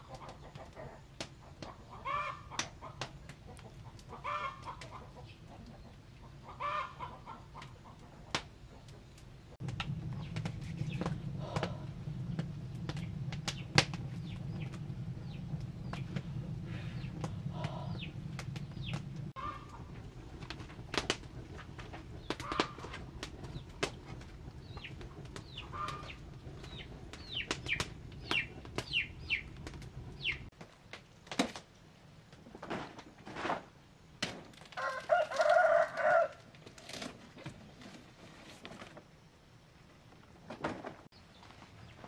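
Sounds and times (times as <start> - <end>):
birds chirping: 9.8 - 19.9, 22.0 - 30.5
rooster crowing: 34.8 - 36.5.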